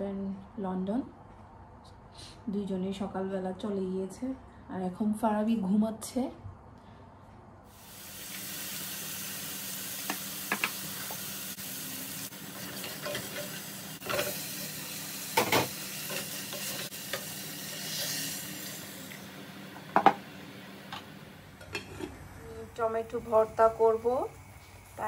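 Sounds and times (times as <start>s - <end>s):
onions sizzling in a pan: 7.7s - 25.0s.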